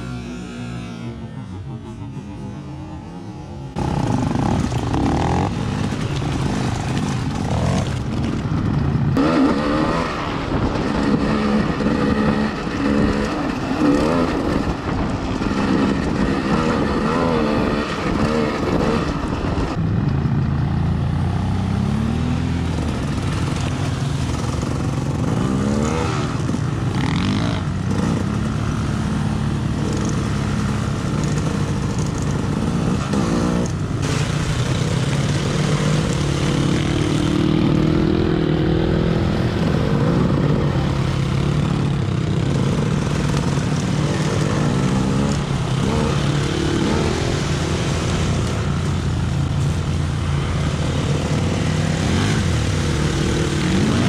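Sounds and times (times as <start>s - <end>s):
off-road vehicle engines revving: 0.0s - 19.8s, 20.6s - 54.0s.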